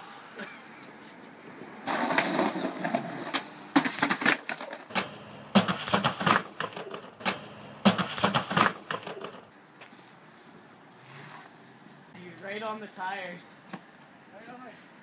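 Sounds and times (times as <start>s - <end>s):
skateboard clattering on concrete: 1.9s - 5.0s.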